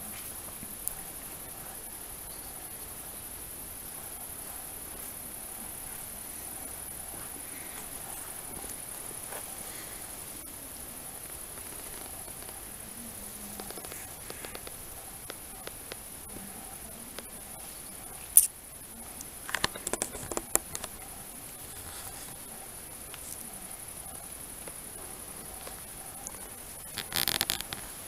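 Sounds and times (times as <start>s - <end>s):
crickets chirring: 0.0s - 28.0s
clicks and rustles: 19.2s - 21.0s, 25.6s - 28.0s.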